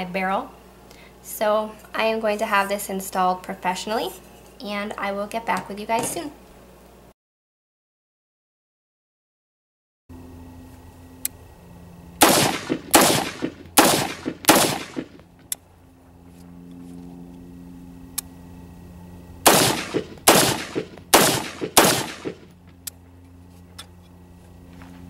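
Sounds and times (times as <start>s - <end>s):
rifle shots: 12.2s - 15.2s, 19.4s - 22.5s.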